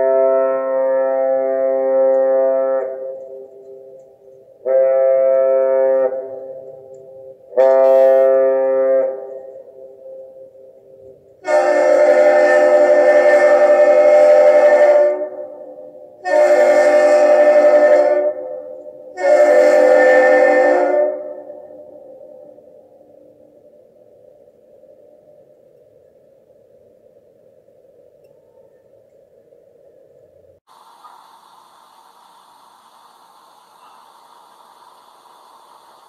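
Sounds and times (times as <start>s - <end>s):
bridge horn blasts: 0.0s - 22.6s
ship horn blasts: 0.0s - 22.8s.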